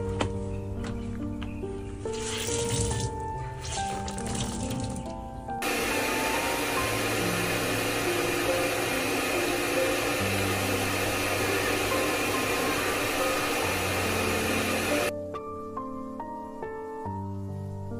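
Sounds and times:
background music: 0.0s - 17.9s
pet dryer blowing air: 5.6s - 15.1s.

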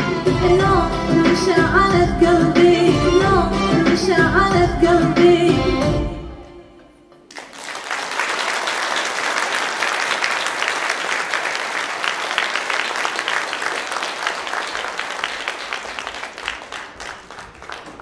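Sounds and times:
audience applauding: 7.3s - 18.0s.

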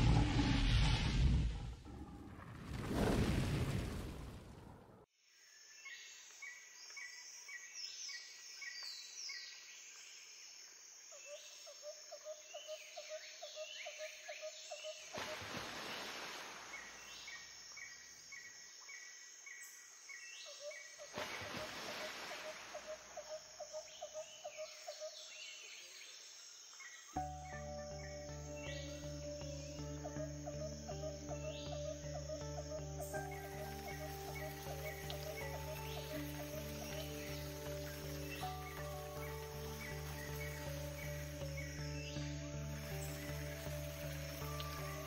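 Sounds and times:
brief rushes of noise: 0.0s - 5.0s
birds chirping: 27.0s - 45.0s
fast pulsed bird notes: 27.2s - 45.0s.

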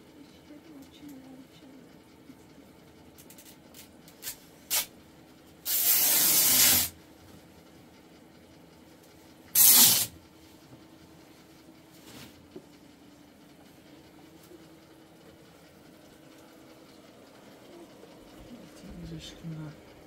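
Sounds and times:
spray hissing from can: 5.7s - 6.9s, 9.6s - 10.1s.

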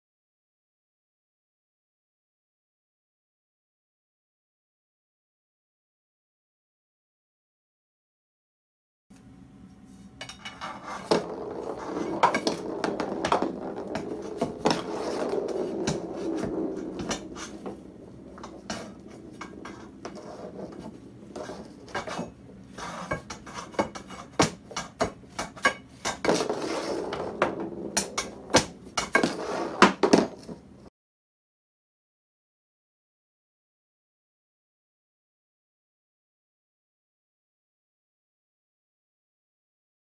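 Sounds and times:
metal scraping: 10.2s - 30.5s
golf balls knocking on floor: 11.0s - 30.7s.

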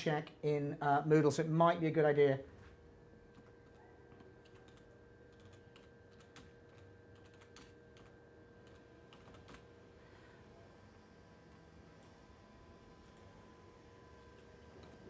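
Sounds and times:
computer keyboard typing: 3.3s - 9.7s, 14.2s - 15.0s.

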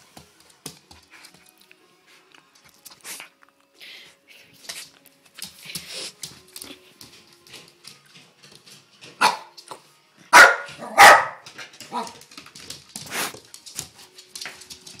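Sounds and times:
dog barking: 9.2s - 9.5s, 10.3s - 12.1s.

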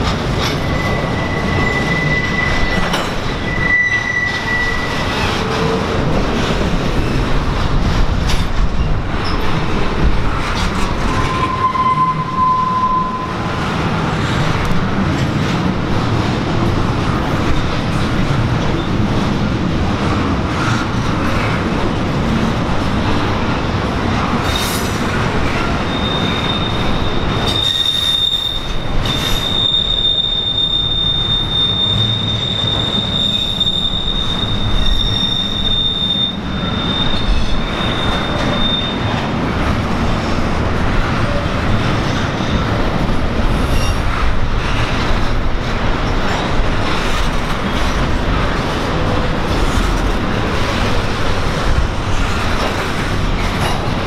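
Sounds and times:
freight train rolling past: 0.0s - 54.0s
high wheel squeal: 0.4s - 5.6s, 11.1s - 13.5s, 25.7s - 39.2s.

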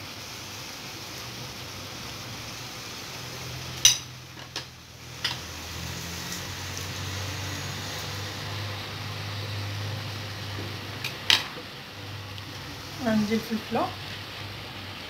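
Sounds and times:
food sizzling in frying pan: 0.0s - 15.0s.

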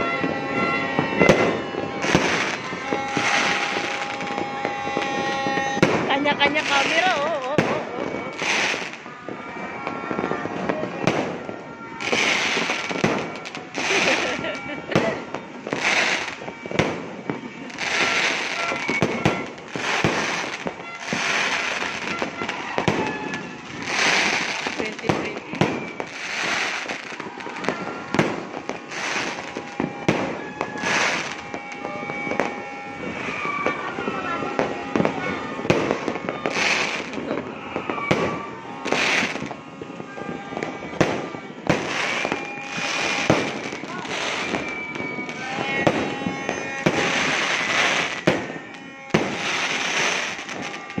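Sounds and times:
firework bangs: 0.0s - 51.0s
hissing crackling sparks: 12.0s - 31.8s.

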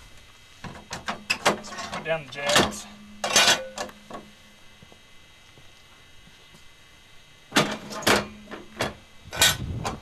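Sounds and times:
metal clanks of stabilizer jack: 0.7s - 4.3s, 7.5s - 9.6s.

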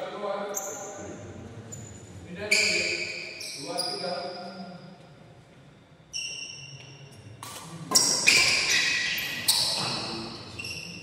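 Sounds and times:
shoes squeaking on court: 1.7s - 4.4s, 6.1s - 11.0s.

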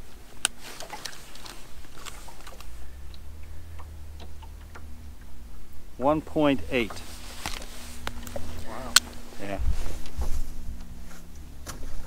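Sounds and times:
low steady hum: 0.0s - 12.0s
fishing tackle clicks and taps: 0.4s - 5.4s.

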